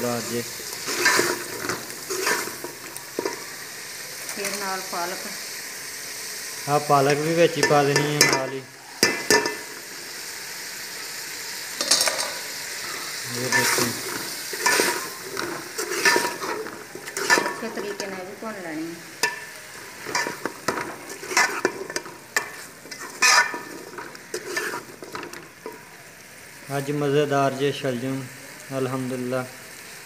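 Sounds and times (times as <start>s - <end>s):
food sizzling: 0.0s - 30.0s
metal spatula scraping a pot: 0.2s - 3.5s, 7.0s - 8.5s, 11.8s - 18.4s, 19.1s - 25.8s.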